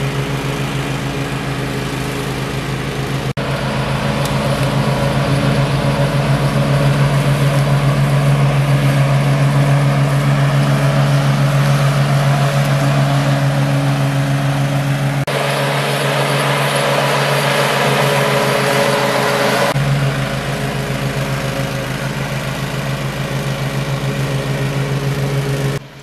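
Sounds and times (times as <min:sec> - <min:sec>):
lawn mower cutting grass: 0:00.0 - 0:26.0.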